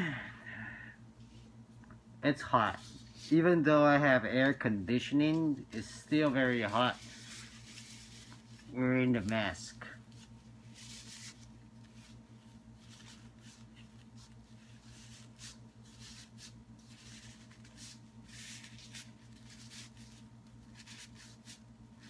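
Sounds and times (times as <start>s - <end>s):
steady low hum: 0.0s - 22.0s
fabric mask rustling and scratching: 5.2s - 22.0s.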